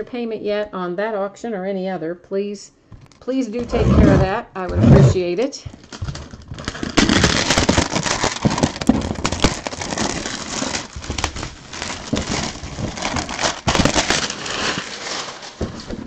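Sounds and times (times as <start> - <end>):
plastic shrink wrap crinkling: 5.7 - 16.0.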